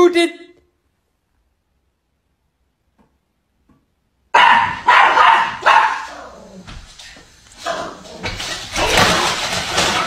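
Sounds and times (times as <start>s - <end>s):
small dog barking: 4.3s - 6.4s.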